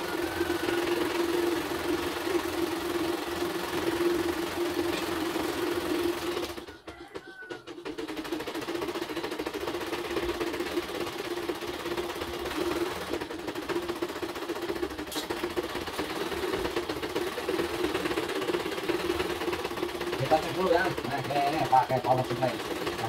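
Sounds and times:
embroidery machine rattling hum: 0:00.0 - 0:23.0.

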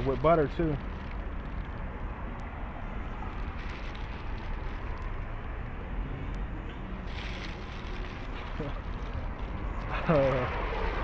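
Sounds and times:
distant traffic rumble: 0:00.0 - 0:11.0
paper wrappers crinkling: 0:03.2 - 0:05.5, 0:07.0 - 0:11.0.

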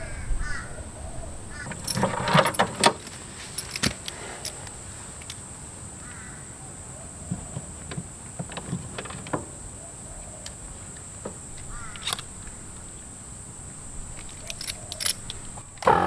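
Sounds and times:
high insect drone: 0:00.0 - 0:16.0
air hose fittings clicking: 0:11.5 - 0:12.6, 0:14.1 - 0:16.0.

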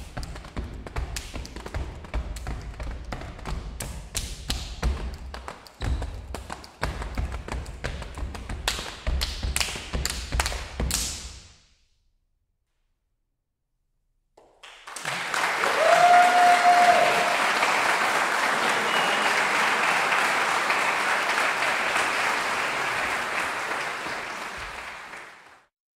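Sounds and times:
audience applause: 0:14.6 - 0:25.7
person cheering: 0:15.5 - 0:20.8.

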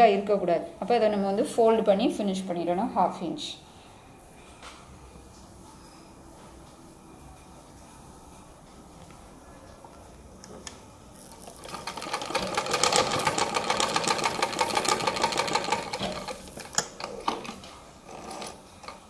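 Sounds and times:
sewing machine stitching: 0:11.3 - 0:19.0
sewing machine clicks: 0:11.6 - 0:17.6.

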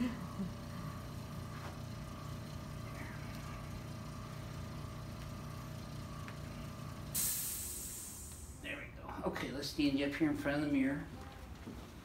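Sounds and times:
small electric motor humming: 0:00.0 - 0:08.6.

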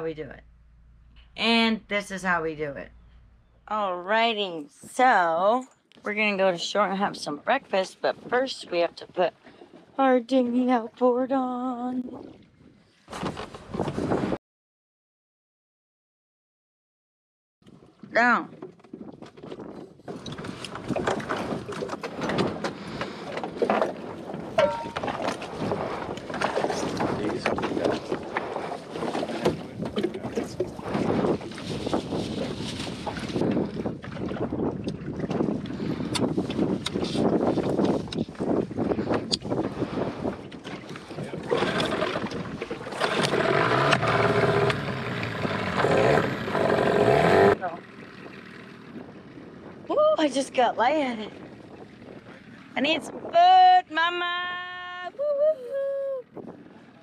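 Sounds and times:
water lapping against boat hull: 0:04.3 - 0:14.4, 0:17.6 - 0:53.3
outboard motor starting and revving: 0:19.5 - 0:49.9.

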